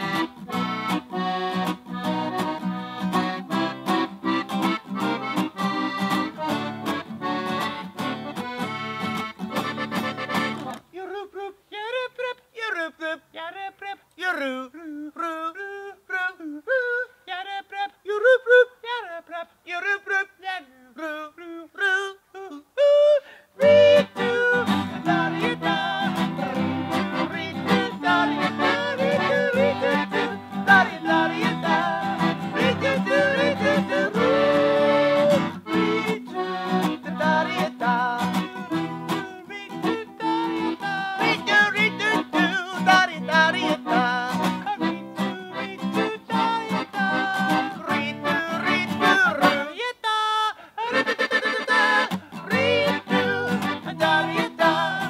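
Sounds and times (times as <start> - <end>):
accordion: 0.0 - 11.1, 23.6 - 49.9, 50.6 - 55.0
acoustic guitar: 0.0 - 55.0
person singing yodel-like: 14.3 - 55.0.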